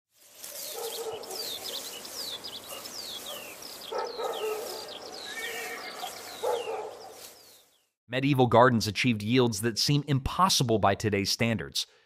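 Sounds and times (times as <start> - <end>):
birds chirping: 0.4 - 8.0.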